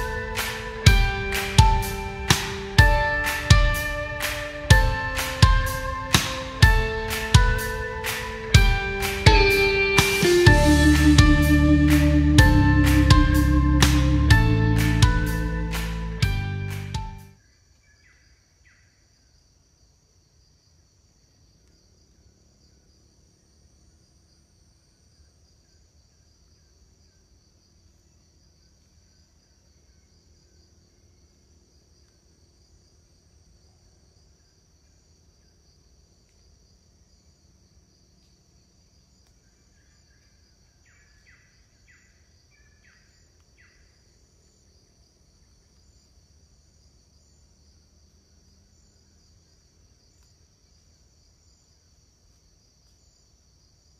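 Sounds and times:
insects trilling: 0:17.4 - 0:53.9
short insect chirps: 0:24.4 - 0:53.9.

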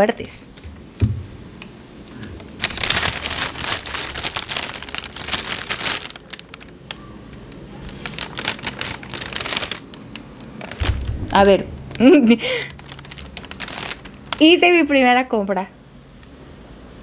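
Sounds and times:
packaging crinkling: 0:02.4 - 0:14.9.

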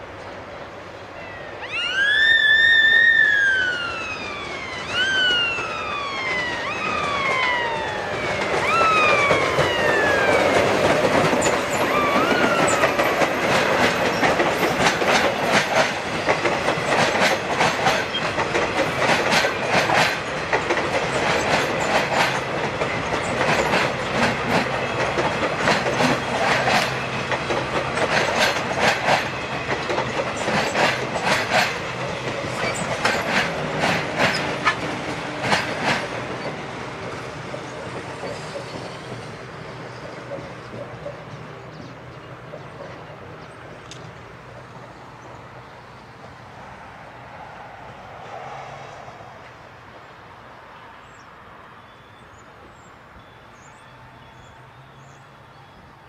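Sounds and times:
train whines swooping in pitch: 0:00.0 - 0:43.8, 0:44.4 - 0:50.0
train wheels clattering: 0:06.4 - 0:44.2.

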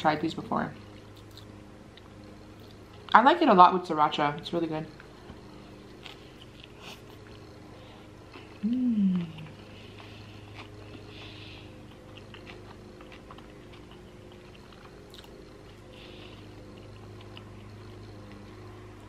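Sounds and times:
faint low hum: 0:00.0 - 0:19.0
close chewing: 0:05.8 - 0:07.6, 0:08.2 - 0:18.8.

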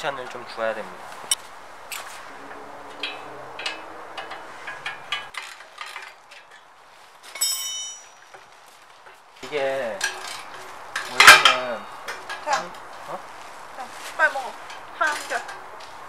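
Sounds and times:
spanner clinking on metal: 0:07.3 - 0:08.4, 0:10.0 - 0:12.7.

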